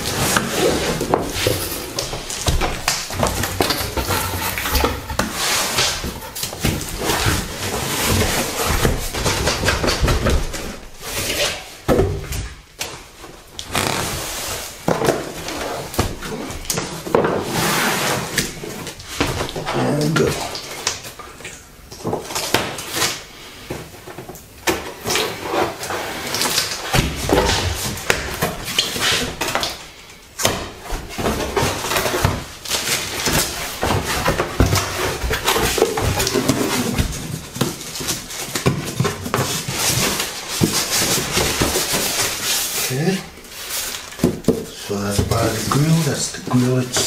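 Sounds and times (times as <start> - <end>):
cardboard box flaps scraping: 13.7 - 14.8
plastic-wrapped parts shifting: 31.2 - 47.0.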